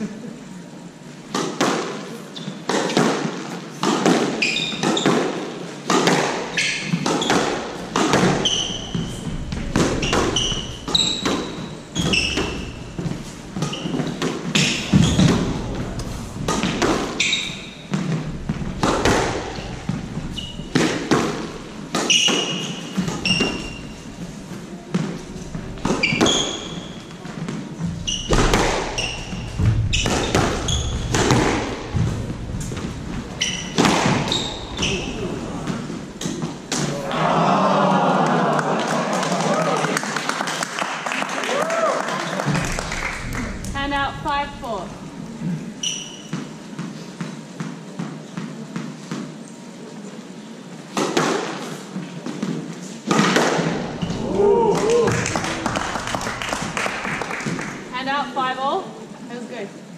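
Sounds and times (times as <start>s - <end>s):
squash ball cracking off rackets: 1.3s - 37.1s, 50.9s - 57.9s
shoes squeaking on hardwood floor: 2.1s - 37.0s, 42.4s - 49.9s, 53.6s - 58.7s
ball thudding against walls: 2.7s - 37.1s.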